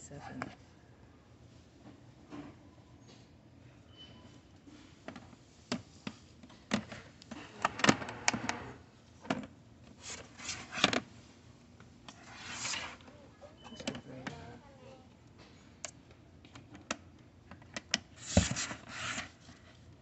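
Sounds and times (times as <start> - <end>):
plastic cases clicking and knocking: 5.0 - 8.2
plastic rubbing scrapes: 12.1 - 13.0, 18.2 - 19.5.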